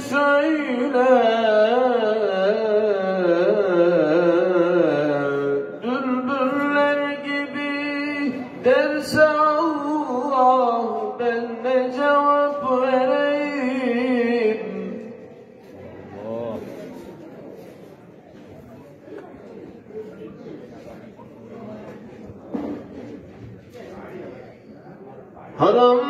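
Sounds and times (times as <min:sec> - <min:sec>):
man singing a hymn: 0:00.0 - 0:15.2, 0:25.6 - 0:26.0.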